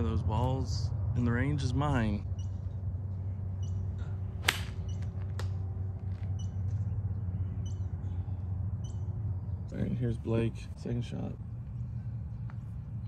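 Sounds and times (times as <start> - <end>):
low background hum: 0.0 - 13.0
golf club striking ball: 4.4 - 5.6.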